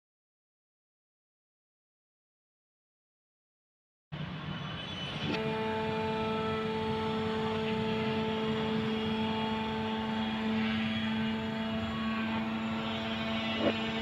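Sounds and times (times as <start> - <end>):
car lift droning hum with whine: 4.2 - 14.0.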